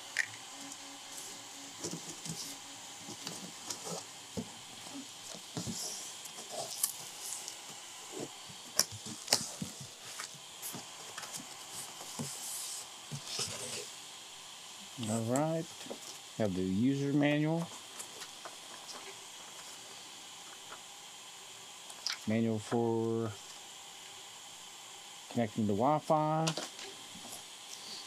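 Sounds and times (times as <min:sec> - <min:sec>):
faint steady hiss: 0:00.0 - 0:28.0.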